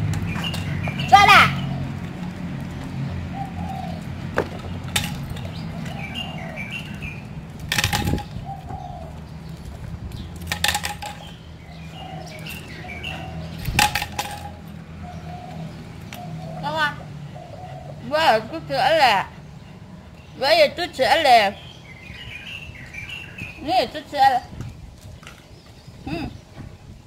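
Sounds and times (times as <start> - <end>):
pipe and chain clattering on asphalt: 0.0 - 15.4.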